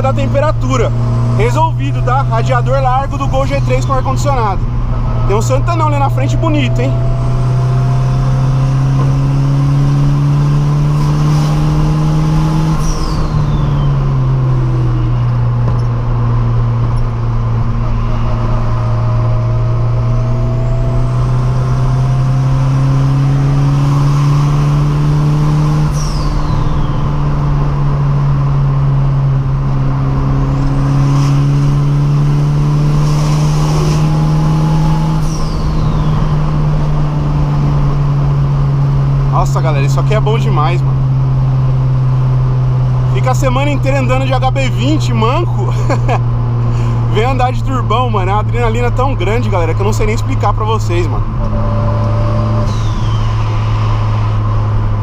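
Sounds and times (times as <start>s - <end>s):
car engine droning at cruise: 0.0s - 55.0s
turbo whistle falling: 51.4s - 54.0s.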